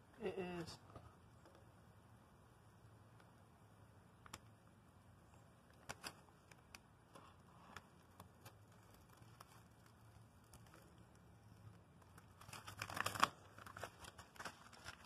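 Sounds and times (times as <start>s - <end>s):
stencil peeling crackles: 5.6s - 15.0s.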